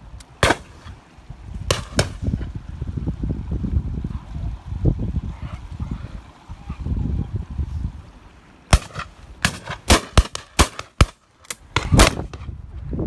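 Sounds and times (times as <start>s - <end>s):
shotgun shots: 0.4s - 0.8s, 8.7s - 11.2s, 11.8s - 12.4s.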